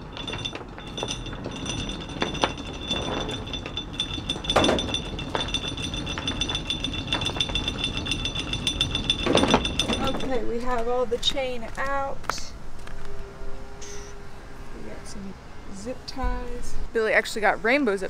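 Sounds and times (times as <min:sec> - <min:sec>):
anchor chain clanking: 0:00.0 - 0:10.9
high-pitched whine: 0:13.7 - 0:14.3.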